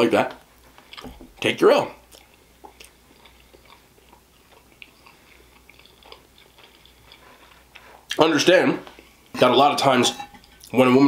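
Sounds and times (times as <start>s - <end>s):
chewing soft food: 2.0s - 8.2s.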